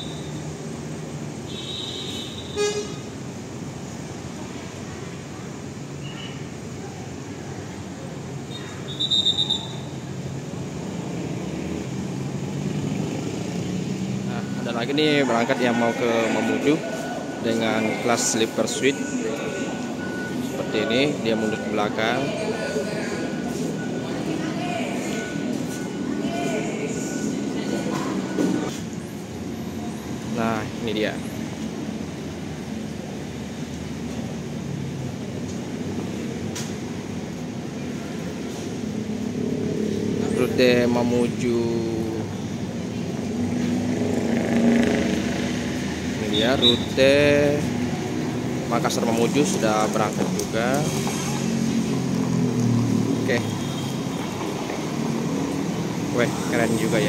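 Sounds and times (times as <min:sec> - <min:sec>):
bus and motorcycle engines droning: 0:00.0 - 0:01.5, 0:02.4 - 0:57.0
high trilling whistle: 0:08.5 - 0:09.9.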